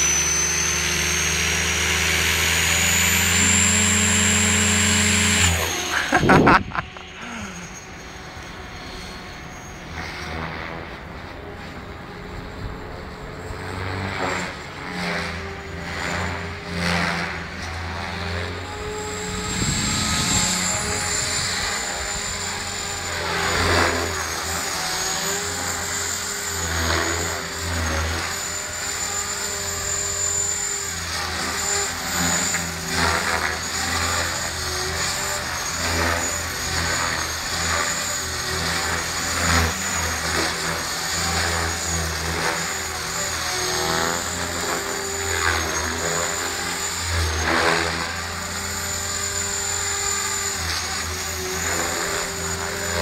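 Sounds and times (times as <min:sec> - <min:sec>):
rotor noise: 0:00.0 - 0:09.5, 0:18.2 - 0:53.0
model helicopter whine: 0:00.0 - 0:53.0.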